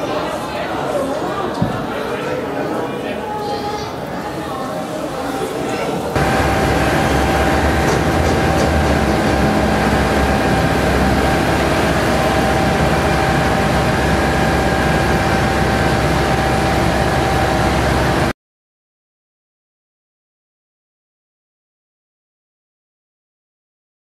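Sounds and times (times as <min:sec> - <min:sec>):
diesel engine idling: 0:06.2 - 0:18.3.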